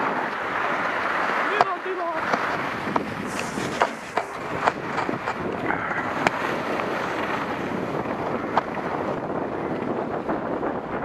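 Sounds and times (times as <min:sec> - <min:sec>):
skis scraping over snow: 0:00.0 - 0:05.5
wind buffeting microphone: 0:00.0 - 0:11.0.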